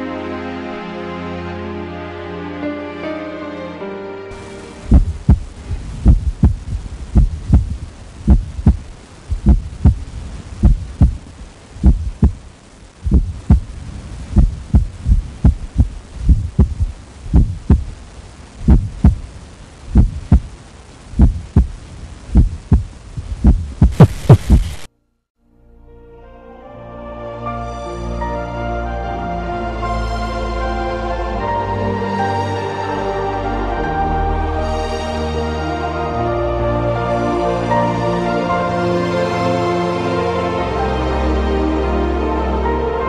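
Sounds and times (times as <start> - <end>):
steady hiss: 4.3 - 24.9
amplified heartbeat: 4.9 - 18.0, 18.6 - 19.2, 19.9 - 20.5, 21.1 - 24.9.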